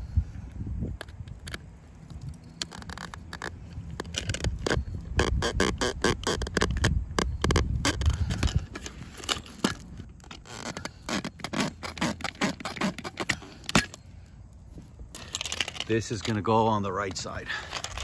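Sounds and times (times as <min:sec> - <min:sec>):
metal scraping on plastic: 0:02.6 - 0:14.0, 0:17.6 - 0:18.0.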